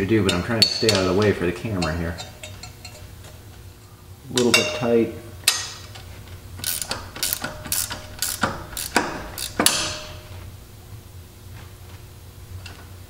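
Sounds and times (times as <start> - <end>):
hand ratchet clicking: 5.5 - 10.2.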